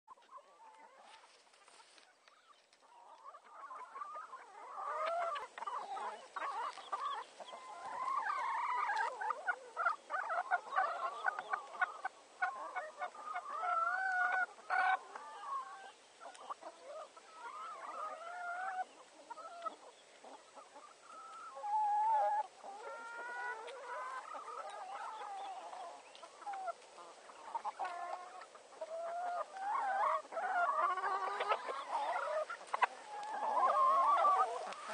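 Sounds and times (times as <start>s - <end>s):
hens clucking: 0.1s - 34.9s.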